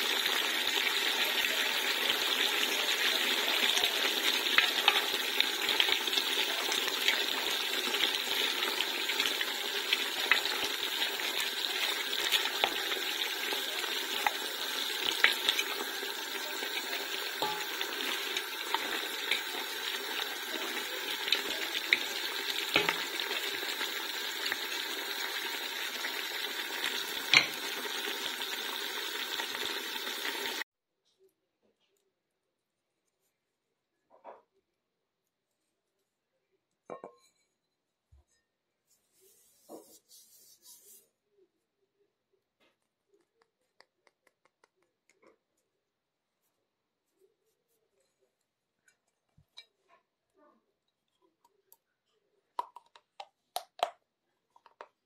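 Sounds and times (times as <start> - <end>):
meat and onions sizzling in a pot: 0.0 - 30.6
wooden spatula scraping a pot: 38.8 - 41.2.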